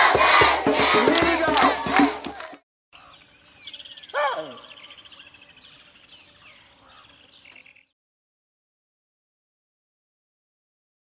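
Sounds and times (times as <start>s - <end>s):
music: 0.0s - 2.6s
birds chirping and trilling: 2.9s - 8.0s.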